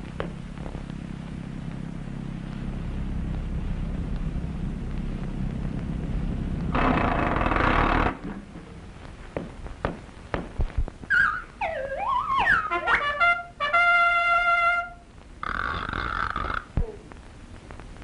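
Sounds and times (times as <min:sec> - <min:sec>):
sharp knocks: 0:09.4 - 0:10.8
sliding tones rising and falling: 0:11.1 - 0:13.2.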